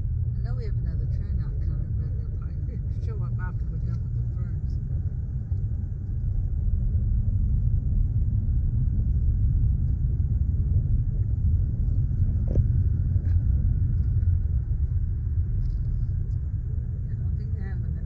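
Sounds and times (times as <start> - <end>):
car road and engine rumble: 0.0 - 18.0.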